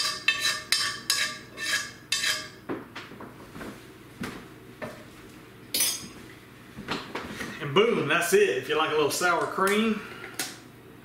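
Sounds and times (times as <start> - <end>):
metal utensil scraping a pan: 0.0 - 2.6.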